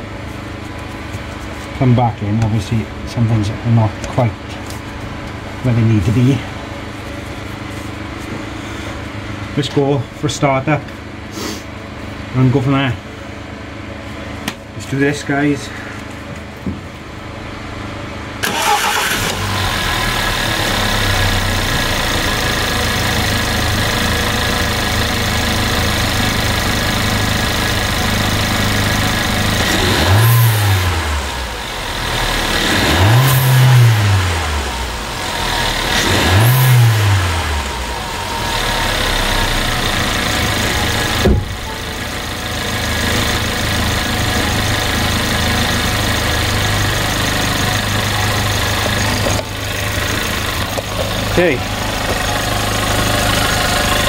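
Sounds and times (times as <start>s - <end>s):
car engine starting and idling: 17.3s - 54.0s
engine revving: 18.4s - 25.2s, 26.2s - 54.0s.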